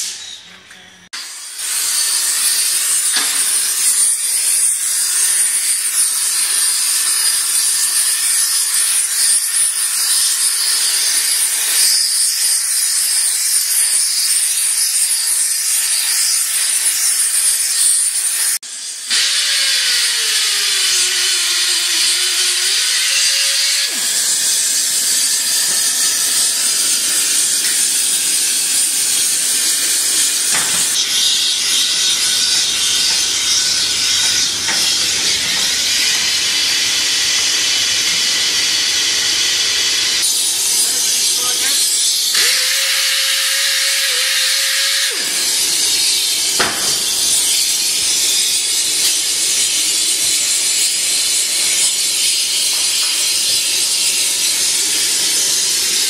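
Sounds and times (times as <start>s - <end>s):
gas torch flame hissing: 19.1s - 50.2s.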